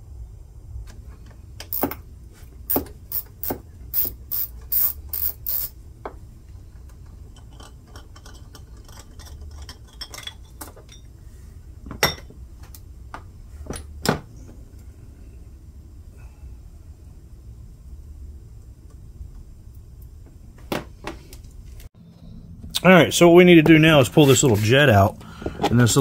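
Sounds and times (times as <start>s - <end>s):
tool scraping on metal: 2.7s - 5.7s.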